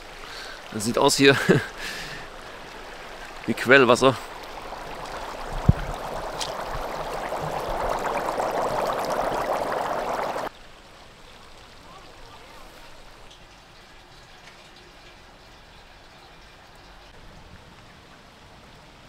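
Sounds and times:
faint outdoor noise: 0.0 - 19.0
water bubbling and gurgling: 2.2 - 10.5.

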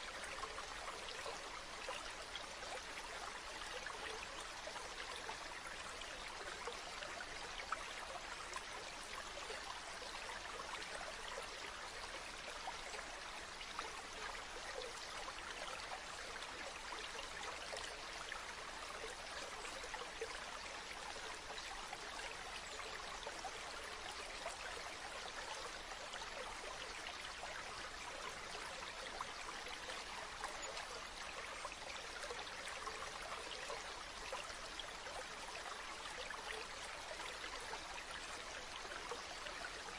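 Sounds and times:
stream flowing: 0.0 - 39.9.

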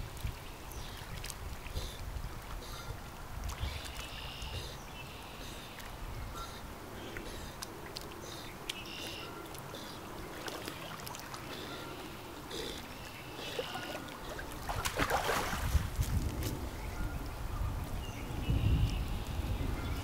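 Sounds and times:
water lapping and swishing: 0.0 - 18.1
dog splashing in water: 13.5 - 16.1.

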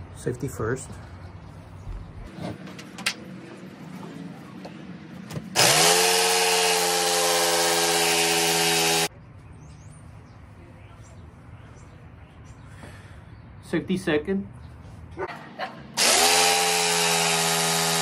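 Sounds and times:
jigsaw cutting: 5.6 - 9.1, 16.0 - 18.0.

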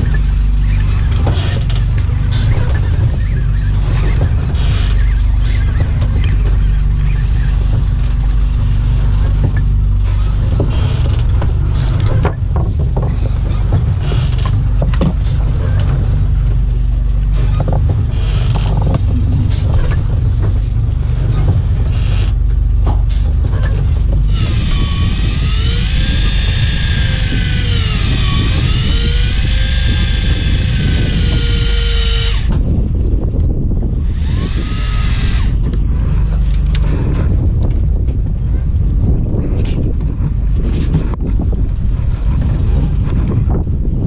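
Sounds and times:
engine low rumble: 0.0 - 44.0
wavering warbling tone: 18.6 - 21.2.

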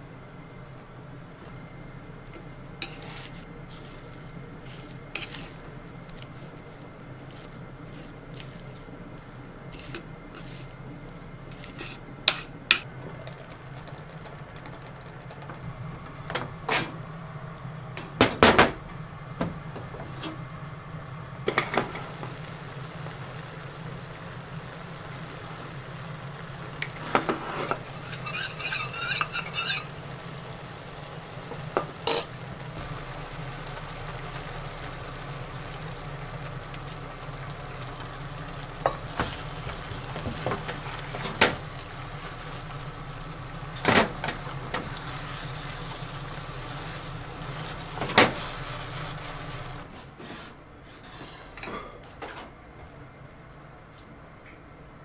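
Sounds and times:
steady low hum: 0.0 - 54.6
utensils knocking on bowl and pan: 31.7 - 32.4
metal spoon clinking in cup: 32.1 - 32.4.

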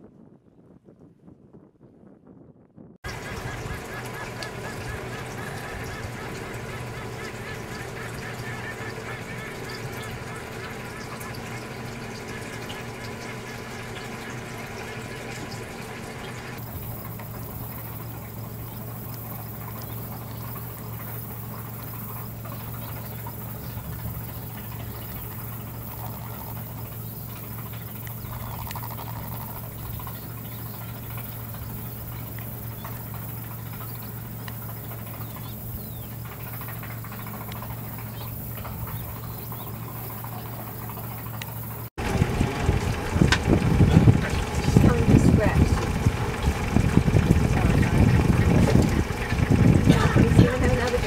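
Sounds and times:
boat motor idling: 3.0 - 51.0
loud rough noise: 13.8 - 51.0
small ticks: 16.6 - 41.9.

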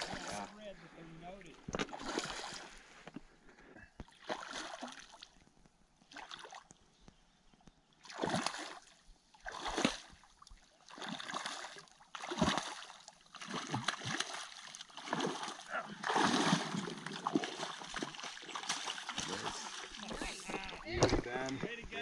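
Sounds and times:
fish splashing at water surface: 10.9 - 21.2.

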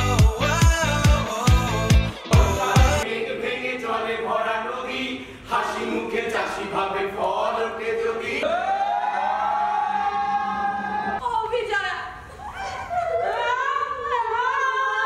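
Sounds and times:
pop music with heavy beat: 0.0 - 3.1
group chanting and singing: 0.0 - 11.2.

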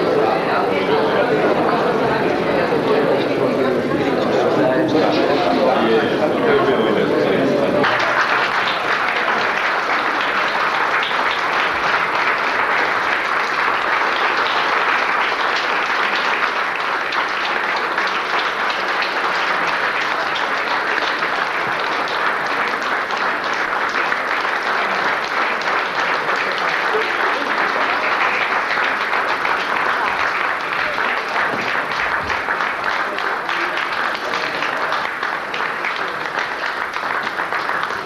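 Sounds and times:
audience applauding: 7.7 - 38.0.

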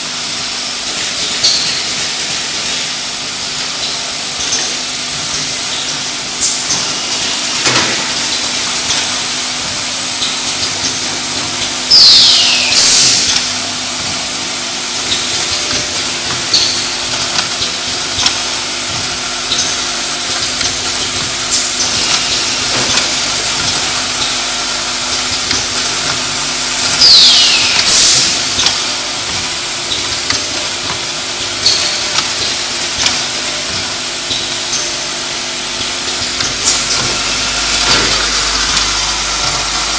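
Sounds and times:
machine hiss: 0.1 - 39.9
motor hum: 4.2 - 39.9
air burst with falling whistle: 11.9 - 13.2, 27.0 - 28.2.

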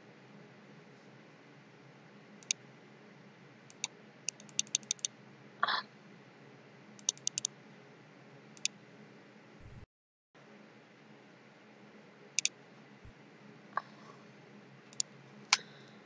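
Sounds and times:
faint steady hum: 0.0 - 16.0
computer keys clicking: 3.7 - 5.1, 7.0 - 7.5.

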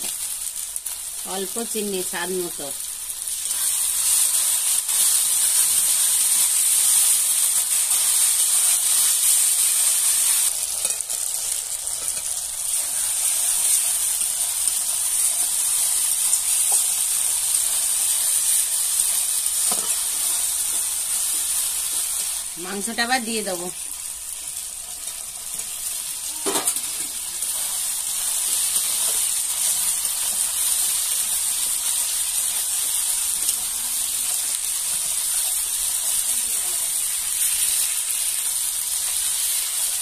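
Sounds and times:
masala sizzling in hot oil: 0.0 - 40.0
spatula stirring: 10.7 - 12.9.

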